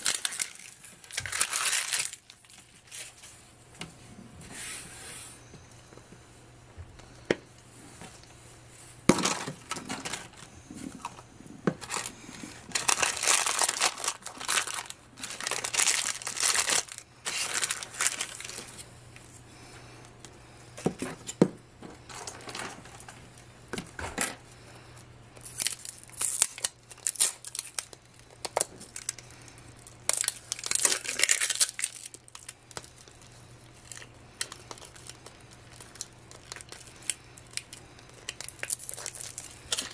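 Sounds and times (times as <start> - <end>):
plastic pouches crinkling and tearing: 0.0 - 3.3, 9.1 - 18.9, 22.1 - 23.3, 25.4 - 39.9.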